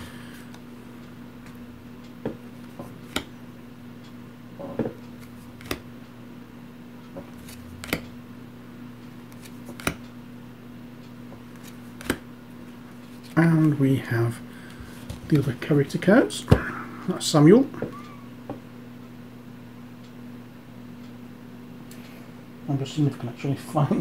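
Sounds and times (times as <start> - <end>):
low electrical hum: 0.0 - 24.0
cards tapping on a table: 2.2 - 3.3, 11.3 - 12.2.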